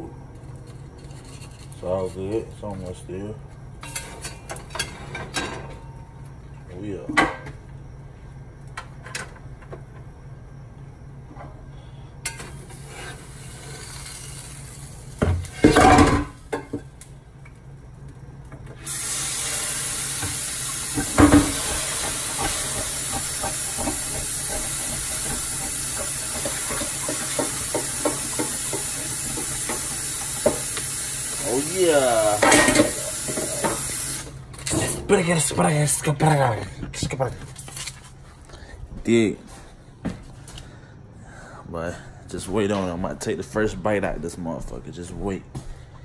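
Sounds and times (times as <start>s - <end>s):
sandwich sizzling in pan: 12.3s - 17.1s, 18.8s - 34.4s.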